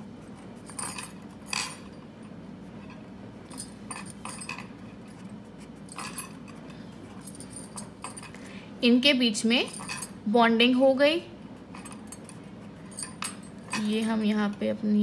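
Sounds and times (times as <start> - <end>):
steady low hum: 0.0 - 15.0
scratchy writing strokes: 4.8 - 7.4, 11.5 - 13.1.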